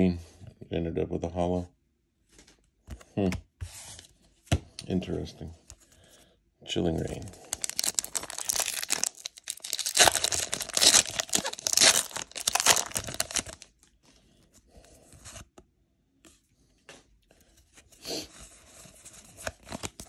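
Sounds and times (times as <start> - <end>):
foil wrapper tearing and crinkling: 7.4 - 13.7.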